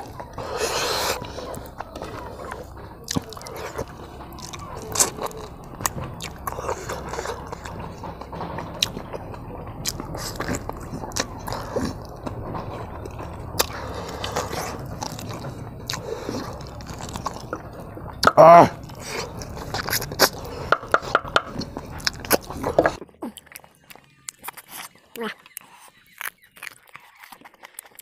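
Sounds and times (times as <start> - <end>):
man chewing meat: 0.0 - 28.0
mouth smacks and clicks: 13.6 - 28.0.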